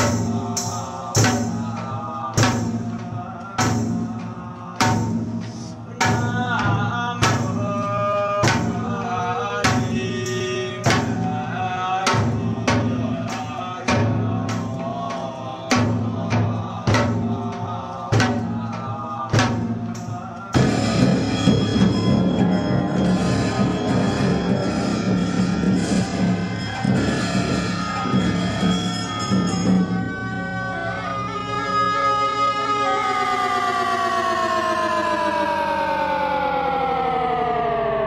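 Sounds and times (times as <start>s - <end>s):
drum struck at even beat: 0.0s - 7.8s
monks low chanting: 0.0s - 35.8s.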